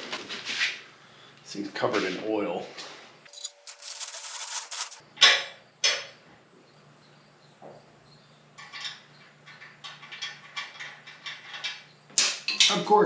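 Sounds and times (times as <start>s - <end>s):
plastic wrapping rustling: 3.6s - 5.0s.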